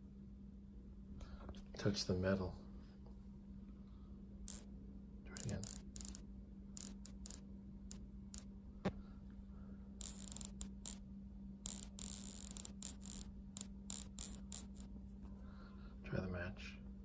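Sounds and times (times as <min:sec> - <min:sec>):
steady low hum: 0:00.0 - 0:17.0
static electricity snaps: 0:05.3 - 0:06.2, 0:06.8 - 0:08.5, 0:10.0 - 0:11.0, 0:11.6 - 0:14.9.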